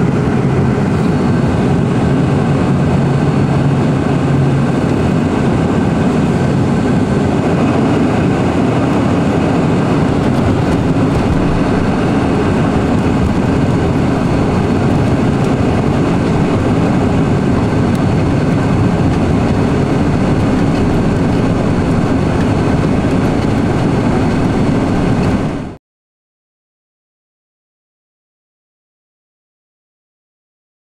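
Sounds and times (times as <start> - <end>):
jet engines and airflow rush: 0.0 - 25.8.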